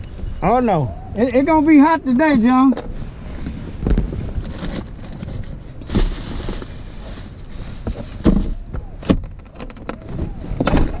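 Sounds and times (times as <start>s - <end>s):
microphone rubbing on leather: 3.0s - 8.9s.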